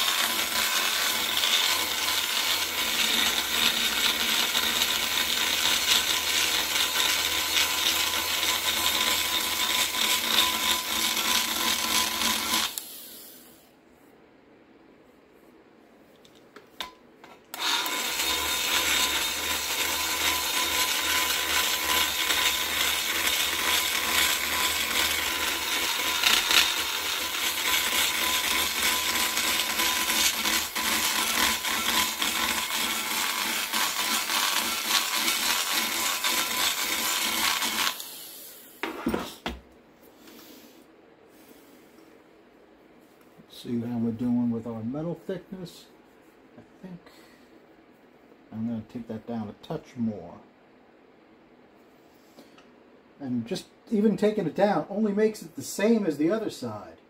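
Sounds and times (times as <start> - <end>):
die grinder grinding metal: 0.0 - 13.0, 17.5 - 38.1.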